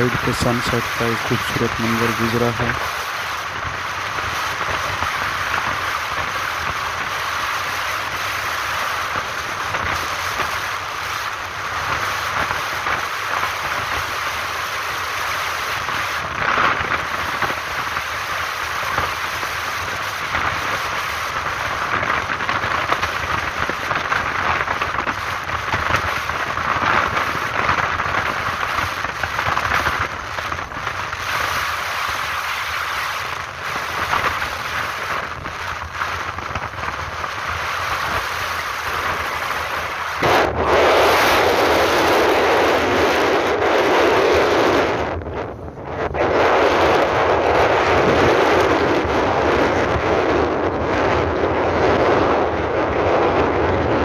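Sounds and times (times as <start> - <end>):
motorcycle road noise: 0.0 - 54.0
wind rushing on microphone: 0.0 - 54.0.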